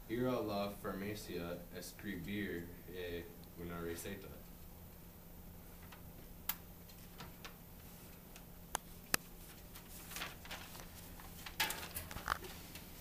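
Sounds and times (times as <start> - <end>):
paper rustling: 9.2 - 13.0.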